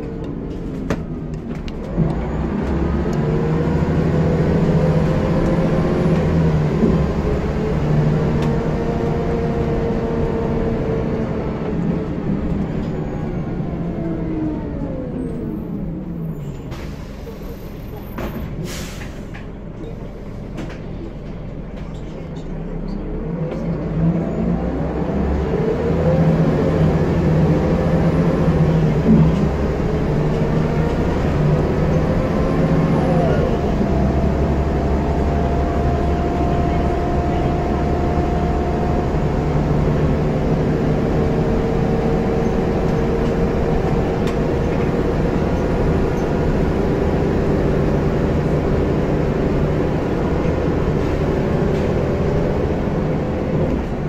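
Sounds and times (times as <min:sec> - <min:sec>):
bus diesel engine: 0:00.0 - 0:54.0.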